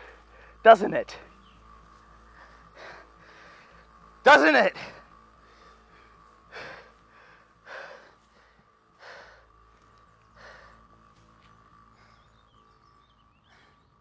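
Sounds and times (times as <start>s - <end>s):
man gasping for breath: 5.4s - 9.6s.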